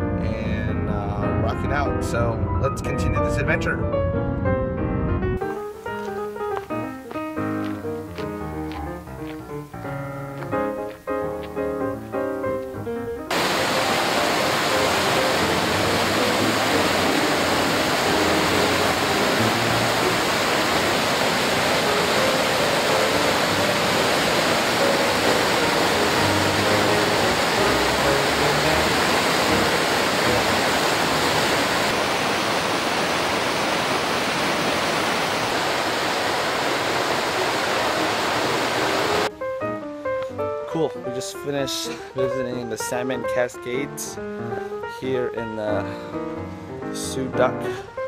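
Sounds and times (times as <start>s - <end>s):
whitewater rushing over rocks: 13.3s - 39.3s.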